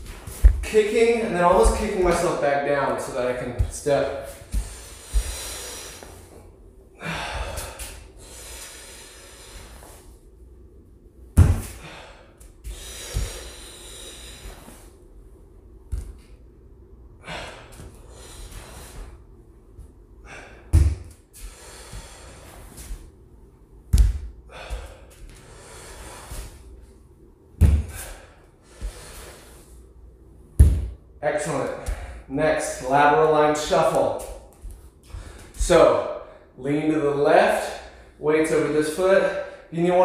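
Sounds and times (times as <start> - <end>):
bare feet thudding on wooden floor: 0.0 - 0.8, 1.4 - 2.1, 11.4 - 11.8, 23.9 - 25.4, 27.6 - 28.1, 30.6 - 31.0
man breathing hard: 4.2 - 10.2, 11.6 - 15.1, 17.0 - 19.4, 20.1 - 23.2, 24.3 - 26.8, 27.8 - 30.0, 35.0 - 35.6.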